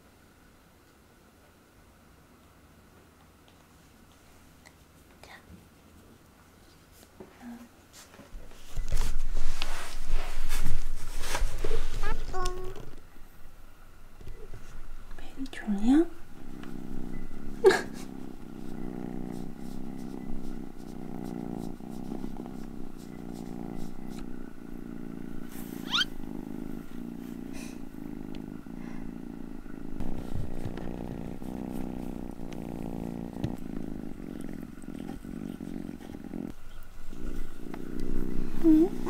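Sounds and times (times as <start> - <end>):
kitten purring: 8.6 - 13.0, 14.3 - 39.0.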